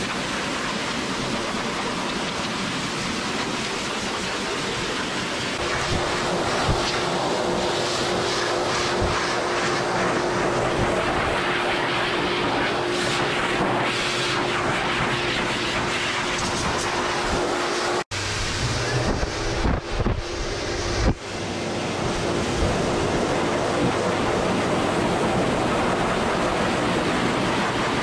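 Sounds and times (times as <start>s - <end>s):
dog dryer blowing air: 0.0s - 28.0s
motor hum: 16.8s - 28.0s.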